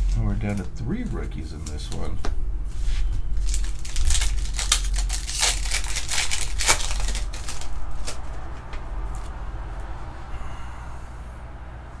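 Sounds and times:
steady low hum: 0.0s - 12.0s
wrapper tearing and crinkling: 3.4s - 8.3s
sharp rustles and clicks: 3.4s - 8.4s.

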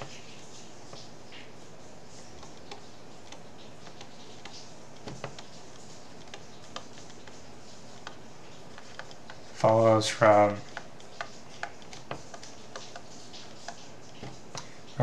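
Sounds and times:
stylus tapping on tablet: 10.6s - 14.7s.

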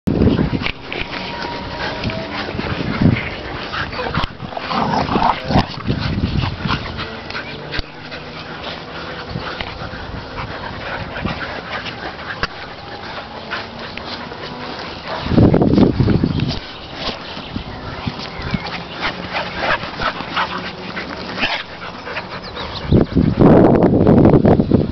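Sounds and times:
dogs scuffling: 0.1s - 22.8s
dogs making sharp vocalisations: 18.1s - 23.0s.

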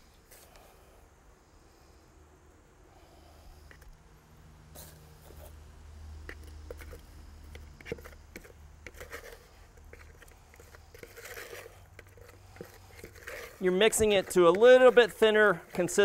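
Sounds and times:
mixing tool scraping plastic pail: 6.3s - 16.0s.

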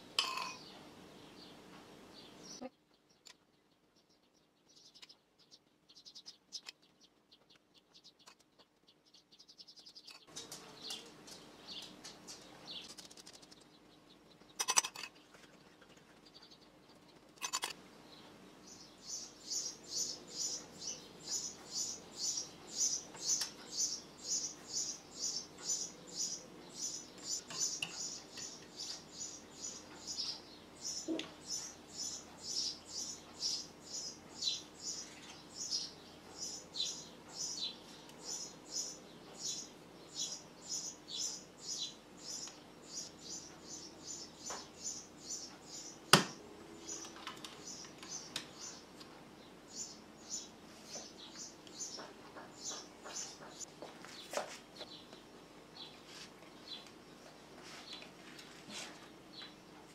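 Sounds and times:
small bird chirping: 0.0s - 58.2s
metal spoon clinking ceramic bowl: 0.2s - 0.6s.

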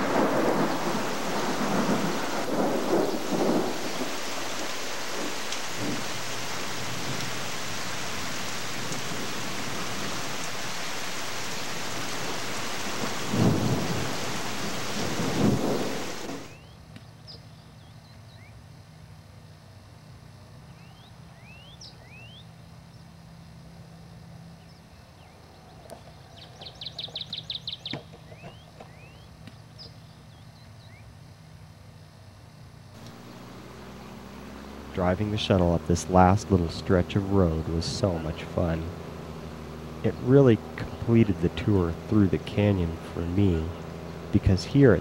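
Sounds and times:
thunder rolling: 0.0s - 10.7s, 11.6s - 16.5s
heavy rain: 0.0s - 16.6s, 33.0s - 45.0s
bird chirps: 15.7s - 18.6s, 20.6s - 23.1s, 24.6s - 31.2s.

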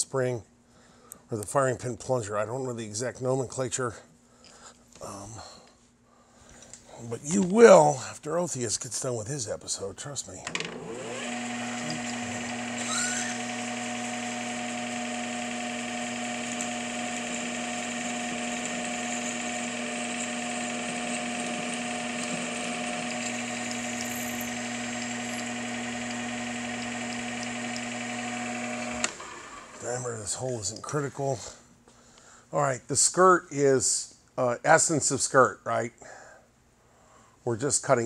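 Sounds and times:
drill boring into metal: 10.6s - 30.0s
metal lathe humming: 10.6s - 30.0s.

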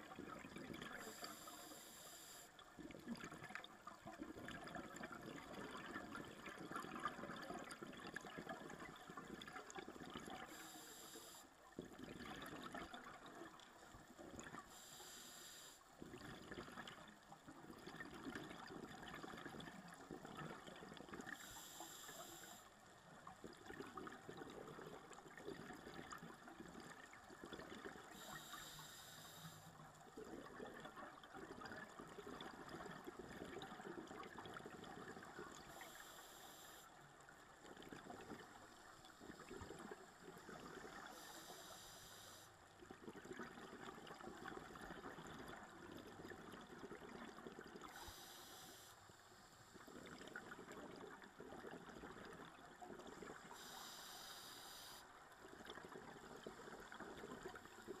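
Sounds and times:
bubbling and gurgling exhaled air: 0.0s - 58.0s.

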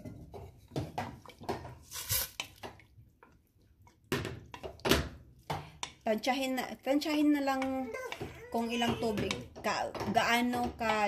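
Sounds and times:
water sloshing and splashing: 0.0s - 5.5s
spoon stirring vegetables in water: 0.0s - 11.0s.

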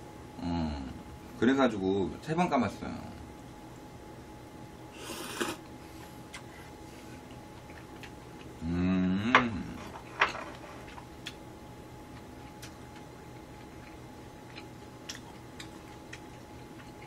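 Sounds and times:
short hummed voice: 0.4s - 1.1s, 8.6s - 10.0s
slurping noodles and broth: 5.0s - 5.6s.

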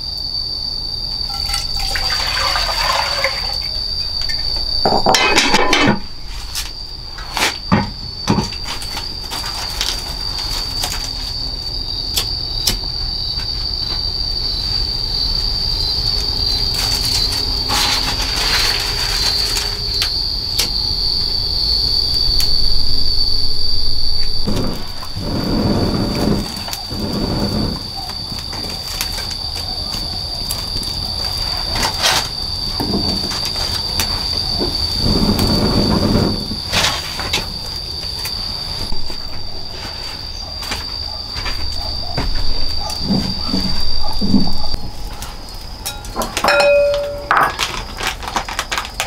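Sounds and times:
high-pitched insect drone: 0.0s - 48.7s
rustling noise: 16.6s - 19.9s, 24.2s - 29.3s, 33.0s - 45.5s.

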